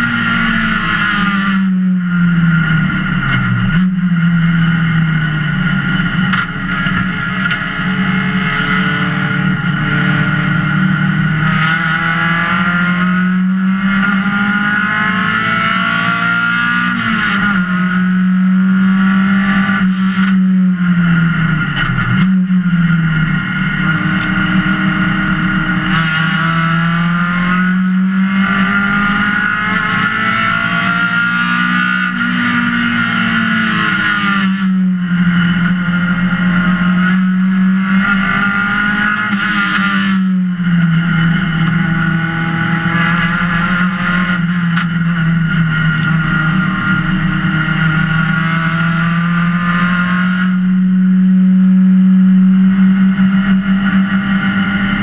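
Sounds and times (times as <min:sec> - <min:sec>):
race car engine revving: 0:00.0 - 0:55.0.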